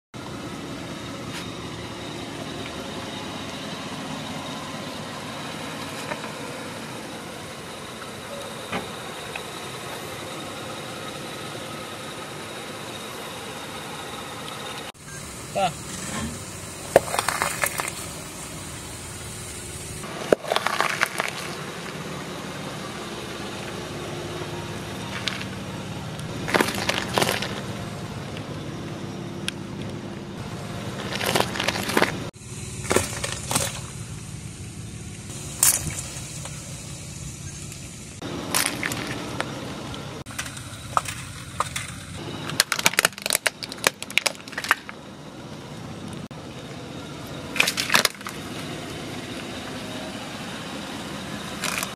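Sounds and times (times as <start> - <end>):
car engine running: 0.1 - 51.9.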